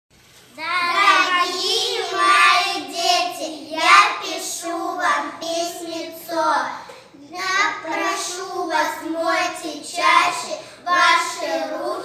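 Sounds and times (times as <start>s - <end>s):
child singing: 0.6s - 12.0s.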